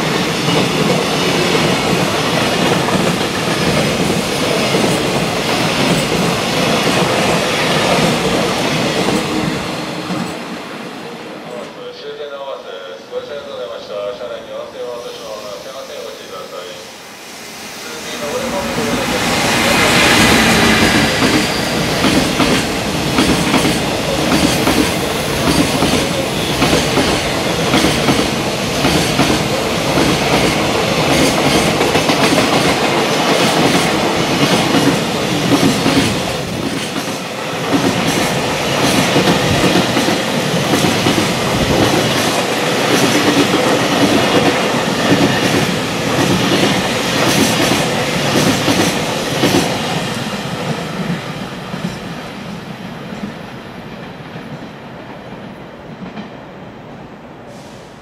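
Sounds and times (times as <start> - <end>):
train wheels clattering over rails: 0.0 - 10.6, 18.3 - 52.2.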